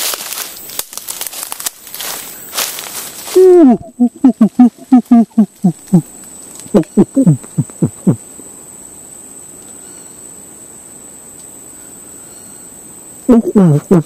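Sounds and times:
high insect whine: 0:00.0 - 0:14.0
person imitating monkey grunts: 0:03.3 - 0:08.3, 0:13.3 - 0:14.0.

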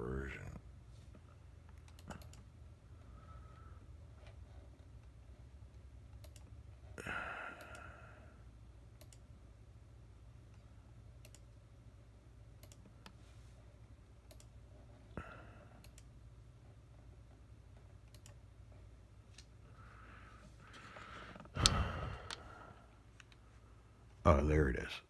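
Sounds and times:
low steady hum: 0:00.0 - 0:25.0
computer mouse clicks: 0:01.6 - 0:02.5, 0:04.2 - 0:06.6, 0:07.6 - 0:07.9, 0:09.0 - 0:09.3, 0:10.5 - 0:11.6, 0:12.6 - 0:13.2, 0:14.2 - 0:14.6, 0:15.8 - 0:16.1, 0:18.0 - 0:18.4, 0:21.3 - 0:22.5.

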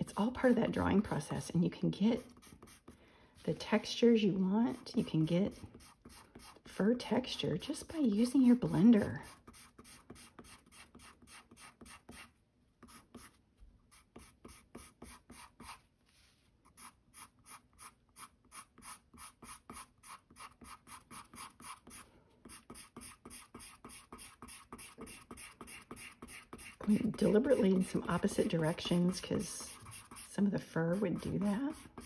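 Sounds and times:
pencil strokes on paper: 0:00.0 - 0:04.0, 0:04.7 - 0:32.0.

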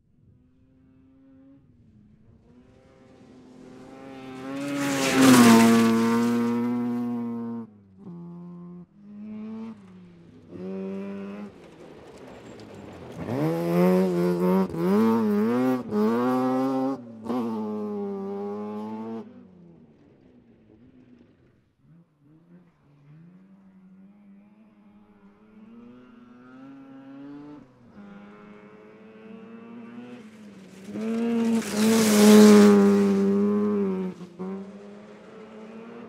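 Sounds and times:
race car engine passing: 0:02.3 - 0:21.5, 0:22.5 - 0:36.0
race car engine revving: 0:03.6 - 0:07.6, 0:29.4 - 0:36.0.

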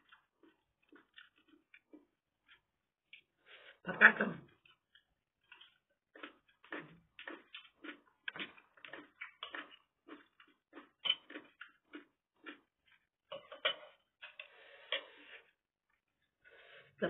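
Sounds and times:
metal spoon clinking on ceramic plates: 0:13.3 - 0:14.5.

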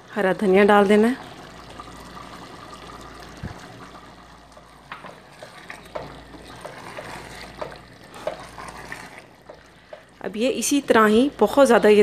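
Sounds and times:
wooden spoon scraping a pot: 0:05.0 - 0:10.1.

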